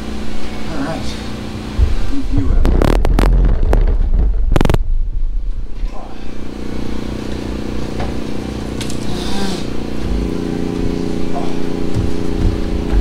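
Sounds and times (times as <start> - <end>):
steady low hum: 0.0 - 13.0
exhaust pipe clanking and scraping: 1.6 - 9.1, 9.7 - 13.0
loud metal knocks: 12.0 - 13.0.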